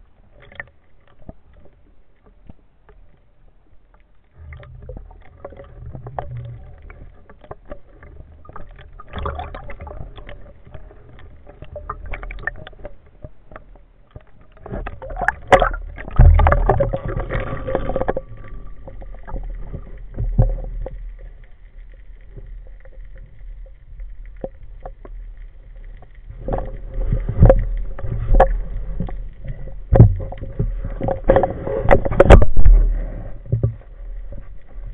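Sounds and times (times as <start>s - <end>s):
underwater rumble: 0.0s - 34.9s
knocks and clunks of speargun: 31.0s - 32.8s.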